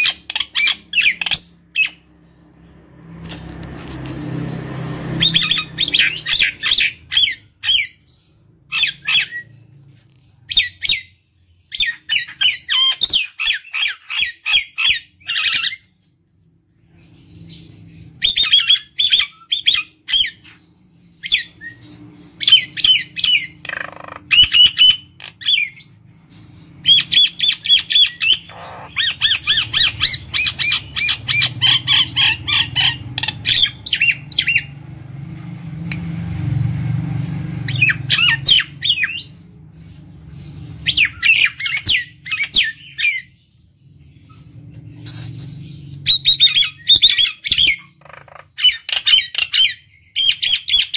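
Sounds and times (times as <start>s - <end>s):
bird chattering harshly: 26.8s - 34.7s.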